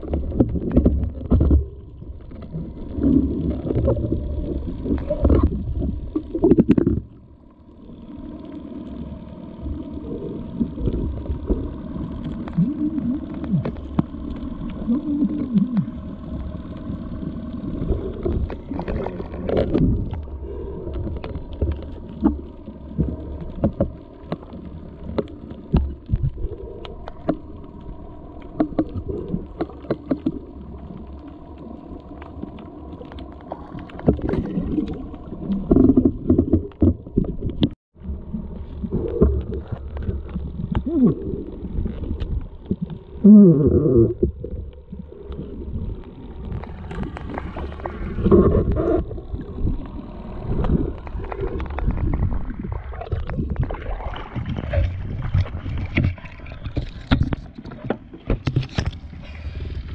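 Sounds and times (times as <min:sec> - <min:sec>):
underwater rumble of moving water: 0:00.0 - 0:59.9
underwater clicks and pops: 0:04.9 - 0:07.2, 0:18.2 - 0:20.3, 0:32.2 - 0:37.8, 0:49.7 - 0:59.1.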